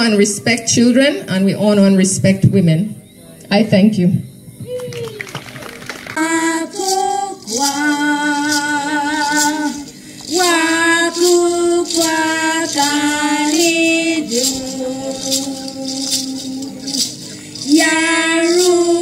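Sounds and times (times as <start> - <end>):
hand rattle shaken: 5.3 - 19.0
women singing together: 6.2 - 19.0.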